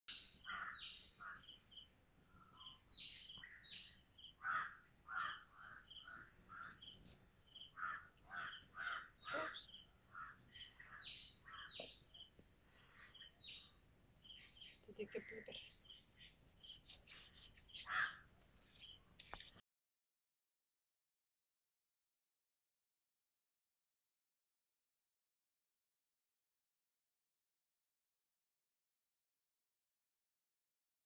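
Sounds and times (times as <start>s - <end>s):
insects chirping: 0.1s - 19.6s
short bird calls: 16.7s - 19.6s.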